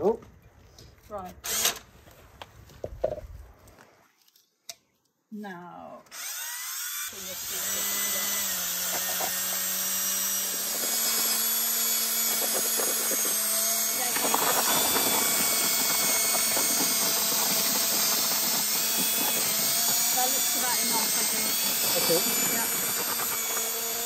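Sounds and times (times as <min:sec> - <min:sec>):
drill motor humming: 0:06.1 - 0:24.0
paddle mixer churning plaster: 0:07.2 - 0:24.0.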